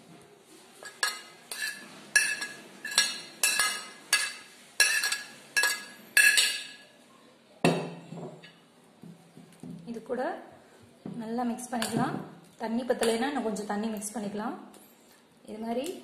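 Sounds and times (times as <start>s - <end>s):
metal spoon clinking on dishes: 0.8s - 6.9s, 13.0s - 13.4s.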